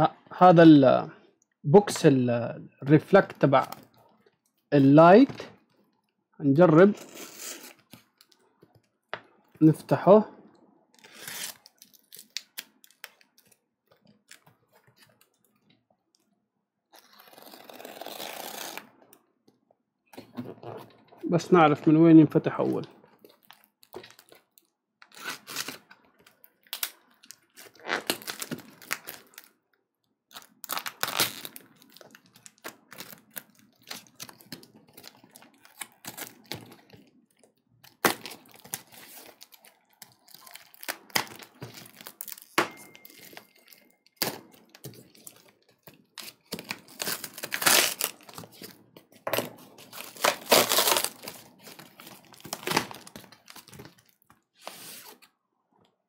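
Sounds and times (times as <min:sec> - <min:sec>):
packing tape ripping: 0:11.0 - 0:13.5, 0:17.0 - 0:18.9, 0:25.0 - 0:25.9, 0:26.7 - 0:29.5, 0:30.3 - 0:36.9, 0:37.8 - 0:48.8, 0:49.8 - 0:54.2
cardboard crinkling and tearing: 0:17.0 - 0:18.8, 0:25.1 - 0:29.5, 0:30.3 - 0:37.1, 0:37.8 - 0:55.2.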